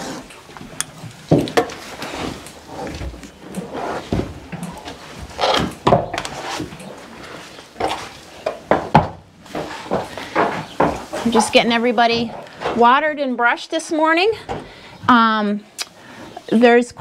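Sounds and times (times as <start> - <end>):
horse knocking in wooden stall: 5.5 - 6.3, 7.8 - 11.6.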